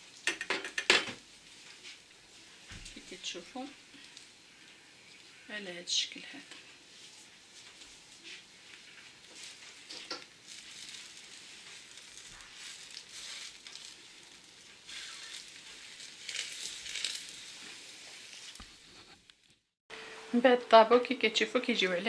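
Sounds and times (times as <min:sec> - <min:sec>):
sandwich sizzling in oil: 0:06.7 - 0:19.2.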